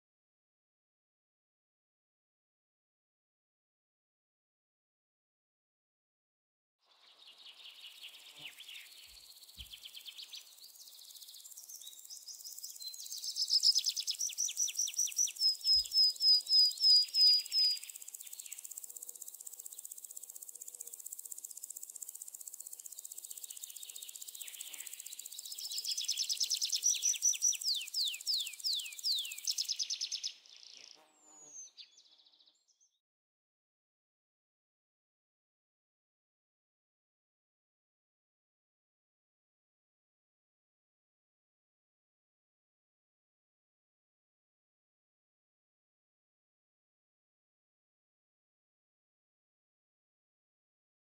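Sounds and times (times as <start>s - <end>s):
insects droning: 17.4s - 29.8s.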